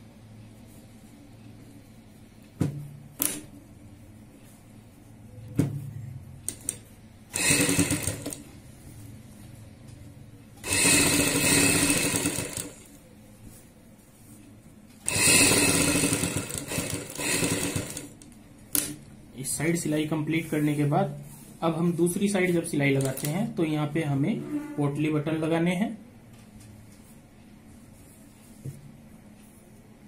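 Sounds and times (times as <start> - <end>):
sewing machine stitching: 7.3 - 8.5, 10.6 - 12.9, 15.0 - 18.2.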